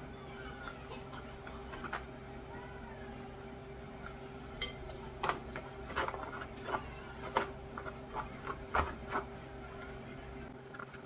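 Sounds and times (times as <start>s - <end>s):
dishes and utensils clinking: 4.0s - 9.9s.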